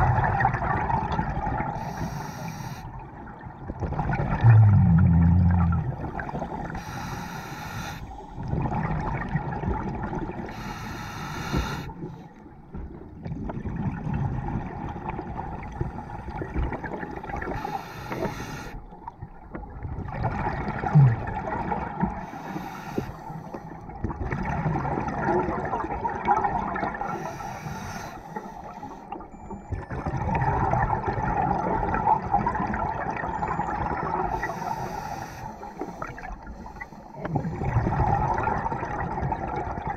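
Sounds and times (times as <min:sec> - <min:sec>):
bubbles gurgling underwater: 0:00.0 - 0:01.9, 0:03.0 - 0:06.9, 0:08.3 - 0:10.6, 0:12.7 - 0:17.7, 0:18.9 - 0:22.3, 0:23.9 - 0:27.2, 0:29.3 - 0:34.5, 0:37.2 - 0:39.9
regulator breath rush: 0:06.8 - 0:08.3, 0:10.5 - 0:12.0.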